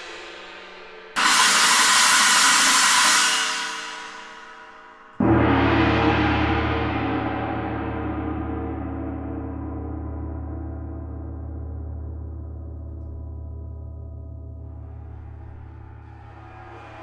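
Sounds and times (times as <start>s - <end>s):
gong struck: 5.2s - 13.6s.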